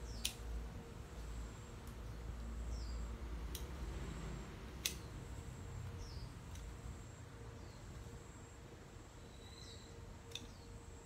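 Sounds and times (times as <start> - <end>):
sharp clicks: 0.1 - 0.5, 4.8 - 5.1
bird chirps: 9.2 - 10.8.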